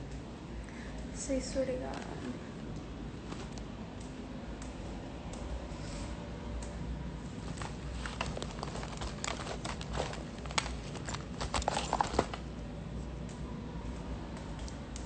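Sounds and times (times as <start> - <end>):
low room hum: 0.0 - 15.0
clicks taps and rustles: 7.4 - 12.6.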